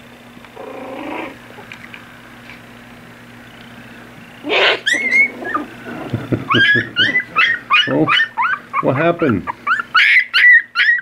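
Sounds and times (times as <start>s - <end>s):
puppy squealing: 0.6s - 1.4s, 4.4s - 11.0s
puppy high-pitched cries: 4.4s - 5.8s, 6.5s - 11.0s.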